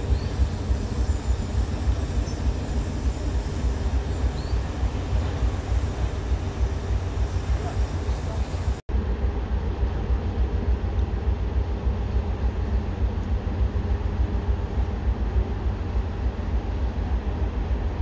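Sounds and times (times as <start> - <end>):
wind buffeting microphone: 0.0 - 8.8
diesel locomotive engine running: 0.0 - 18.0.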